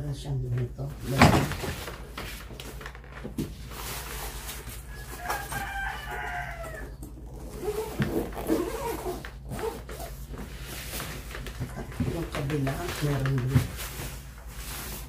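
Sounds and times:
rooster crowing: 0:04.9 - 0:07.1.

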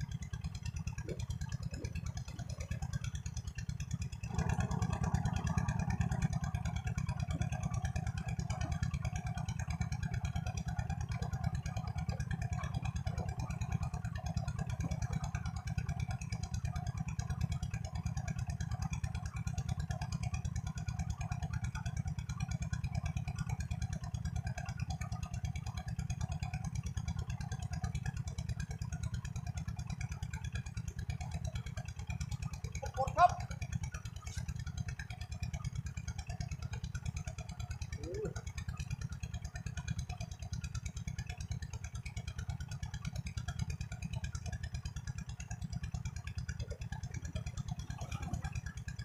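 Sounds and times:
small engine running: 0:00.0 - 0:49.0.

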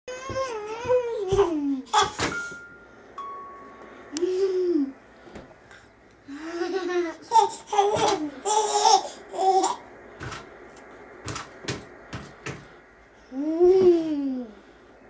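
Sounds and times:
young children giggling: 0:06.3 - 0:09.1.

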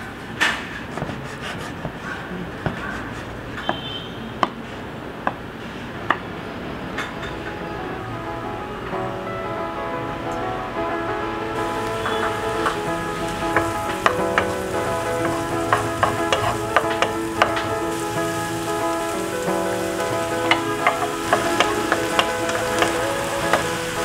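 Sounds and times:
soft background music: 0:07.3 - 0:24.0
onions sizzling in a pan: 0:11.6 - 0:24.0
wooden spoon scraping a pan: 0:11.6 - 0:24.0.

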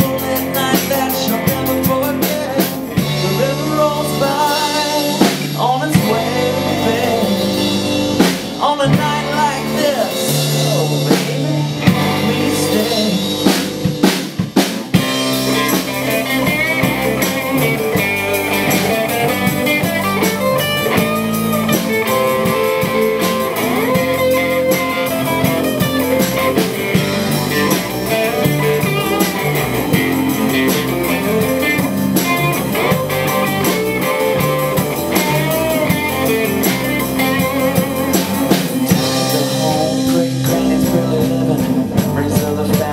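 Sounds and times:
bass guitar: 0:00.0 - 0:42.9
drum kit: 0:00.0 - 0:42.9
electric guitars: 0:00.0 - 0:42.9.

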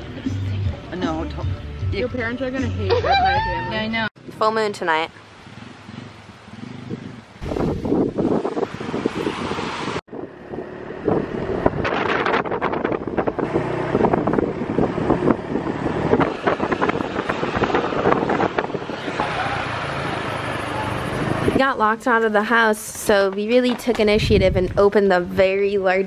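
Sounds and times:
wind buffeting microphone: 0:05.9 - 0:26.0
small vehicle engine droning: 0:08.6 - 0:21.6.

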